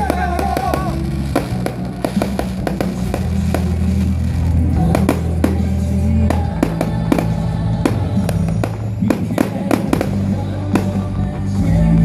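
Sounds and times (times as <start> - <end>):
fireworks bangs and crackles: 0.0 - 12.0
loud music with heavy bass: 0.0 - 12.0.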